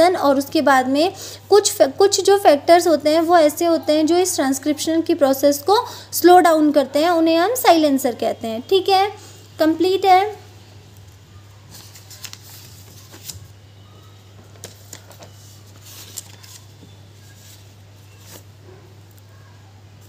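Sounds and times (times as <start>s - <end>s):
notebook pages rustling: 11.0s - 19.2s.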